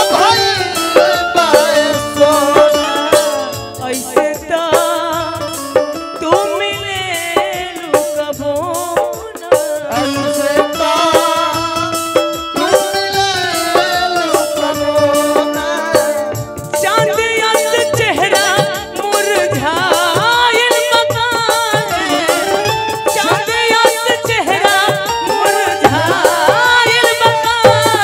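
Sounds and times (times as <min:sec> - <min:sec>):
steady drum beat: 0:00.0 - 0:28.0.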